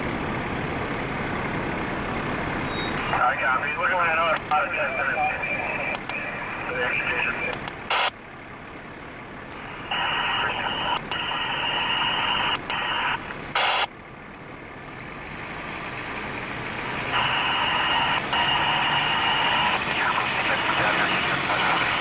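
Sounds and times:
fire engine running: 0.0 - 22.0
radio squelch burst: 3.0 - 8.1, 9.7 - 13.9, 17.1 - 22.0
two-way radio hiss: 3.1 - 8.1, 9.6 - 13.9, 17.1 - 21.9.

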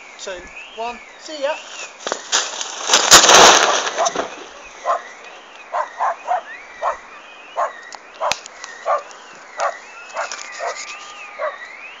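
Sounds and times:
dog barking: 3.9 - 4.2, 4.8 - 5.1, 5.7 - 7.0, 7.6 - 10.8, 11.4 - 11.6.

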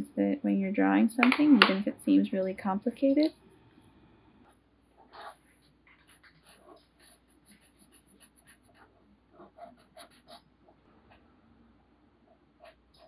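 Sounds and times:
marker scratching on paper: 5.0 - 10.4.

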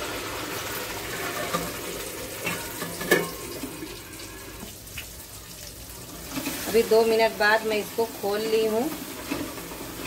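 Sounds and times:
paste sizzling in hot oil: 0.0 - 10.0
steel plate clanking on pan: 2.4 - 3.6.

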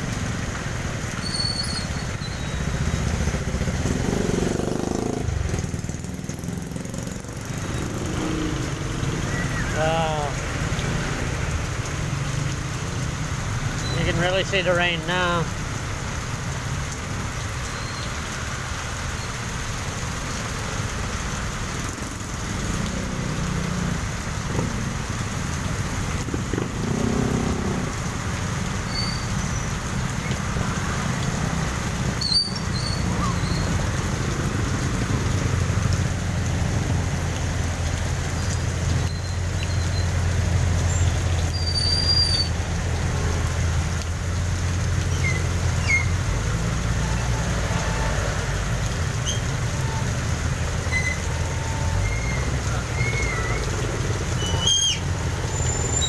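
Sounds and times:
heavy rain on wet road: 0.0 - 56.0
tyres hissing through water: 0.0 - 56.0
brief high squeaks: 1.2 - 2.6
vehicle engines running: 1.9 - 41.7, 42.4 - 56.0.

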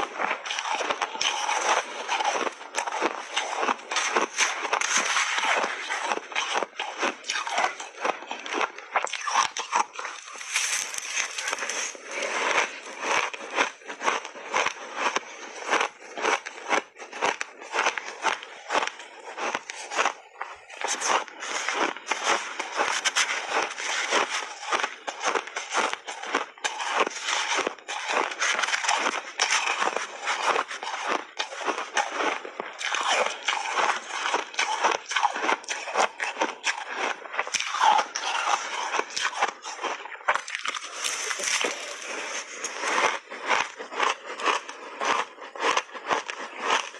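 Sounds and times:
spoon scraping ice: 0.0 - 13.6, 25.6 - 44.7
ice crunching while chewed: 0.0 - 46.9.

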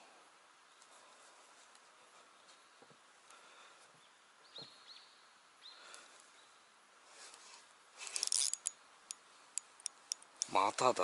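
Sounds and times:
faint bird chirps: 3.9 - 6.8.

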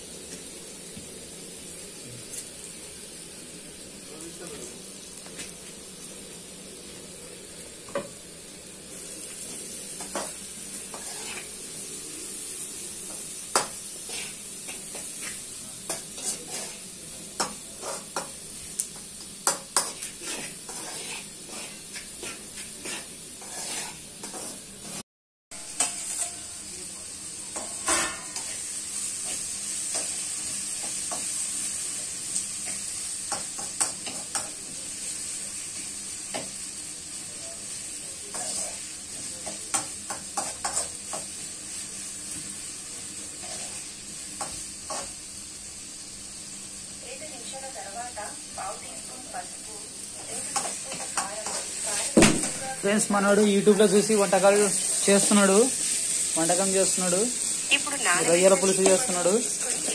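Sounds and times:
onions sizzling in a pan: 0.0 - 59.9
spoon scraping a metal pan: 10.0 - 11.6, 13.1 - 18.3, 19.4 - 25.0, 25.6 - 26.4.

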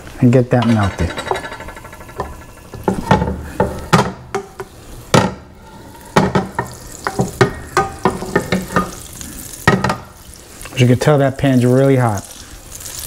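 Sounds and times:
utensil knocking and scraping pan: 0.6 - 9.0
butter sizzling in a pan: 2.1 - 13.0.

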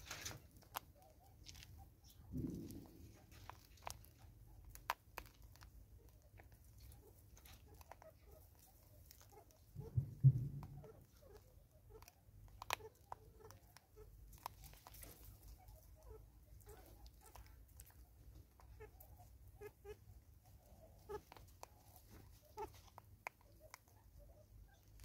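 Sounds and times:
monkey eating seed clicks and crunches: 0.0 - 18.8.

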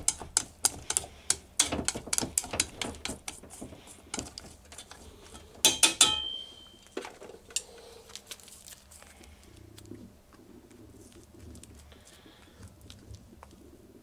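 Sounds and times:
metallic clanks with ringing: 5.6 - 6.9.

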